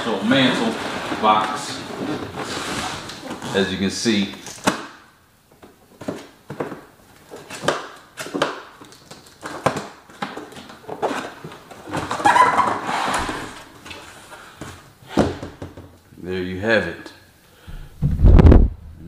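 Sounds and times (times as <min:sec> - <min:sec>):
cardboard lid scraping rustle: 0:00.2 - 0:03.7, 0:10.9 - 0:14.3.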